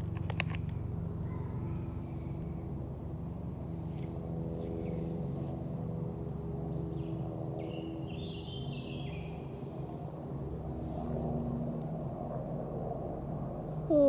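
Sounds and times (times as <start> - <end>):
low mechanical hum: 0.0 - 14.0
bird chirping: 6.9 - 9.4.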